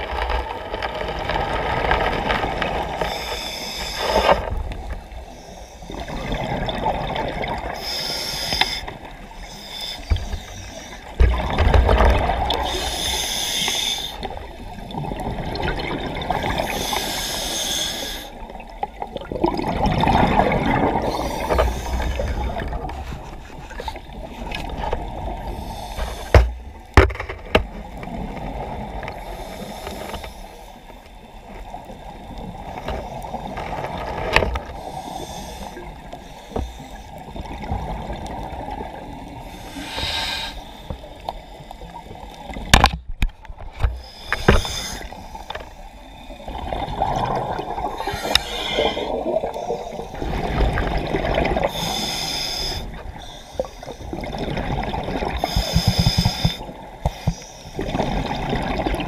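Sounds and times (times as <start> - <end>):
bubbling hisses: 12.2 - 18.5, 34.8 - 42.3, 44.0 - 59.0.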